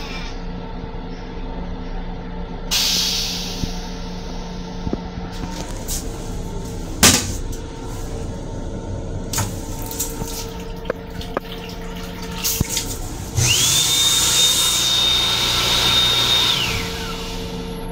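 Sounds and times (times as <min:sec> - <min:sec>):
hand dryer blowing with motor whine: 0:03.6 - 0:17.9
sink faucet running: 0:09.3 - 0:15.9.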